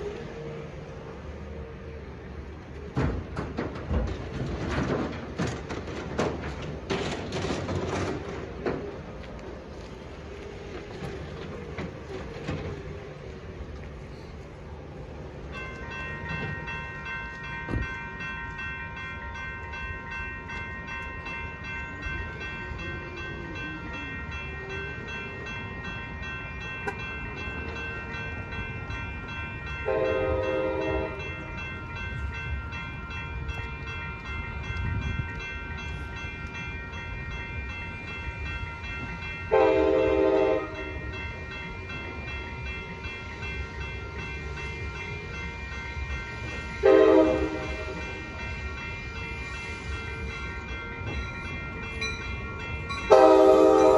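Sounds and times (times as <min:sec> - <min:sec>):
railroad crossing bells ringing: 0:00.0 - 0:53.9
train horn blasts: 0:29.9 - 0:31.2, 0:39.5 - 0:40.9, 0:46.8 - 0:48.0, 0:53.1 - 0:53.9.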